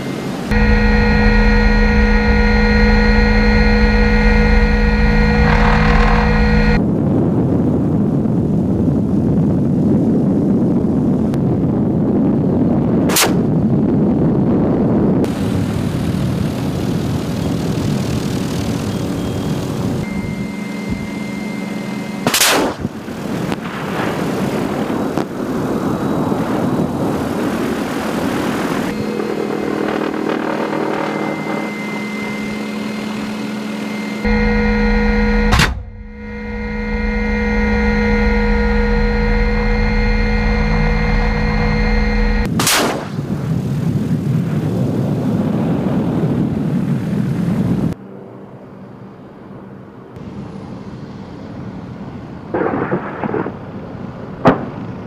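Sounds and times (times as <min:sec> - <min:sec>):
helicopter engine and rotor: 0:00.0 - 0:06.9, 0:15.2 - 0:42.5
sharp bangs of weapons fire: 0:13.1 - 0:13.5, 0:22.2 - 0:23.8, 0:42.5 - 0:43.4.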